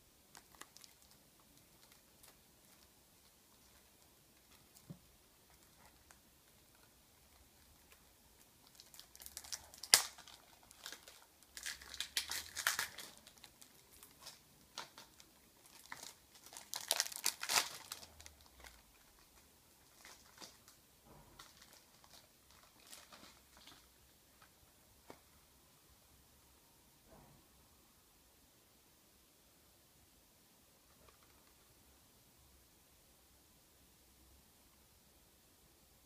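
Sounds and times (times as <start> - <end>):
plastic shrink-wrap crinkling: 0.3 - 25.2.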